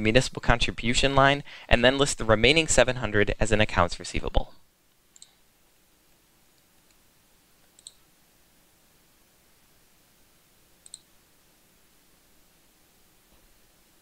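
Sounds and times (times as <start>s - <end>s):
computer mouse clicks: 4.9s - 5.4s, 7.6s - 8.0s, 10.8s - 11.1s.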